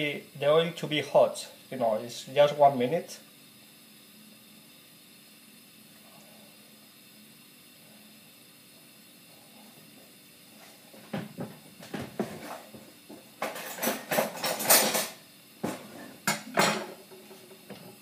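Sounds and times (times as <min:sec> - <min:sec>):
pots and pans clattering: 0:11.1 - 0:18.0.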